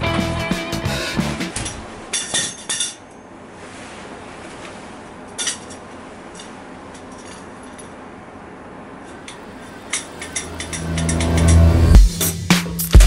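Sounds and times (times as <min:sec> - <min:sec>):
guitar music: 0:00.0 - 0:01.6, 0:10.1 - 0:13.0.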